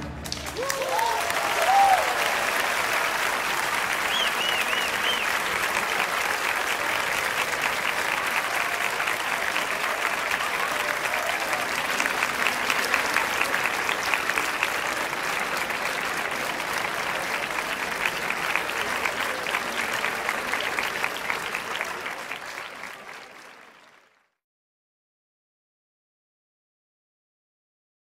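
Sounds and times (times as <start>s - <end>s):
crowd applauding: 0.0s - 24.4s.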